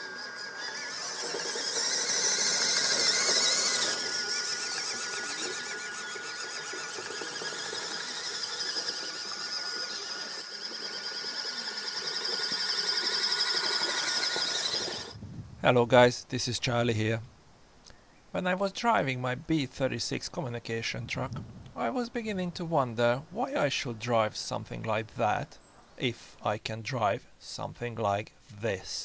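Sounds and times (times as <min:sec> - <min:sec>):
toy truck electric motor whining: 0:00.0 - 0:15.2.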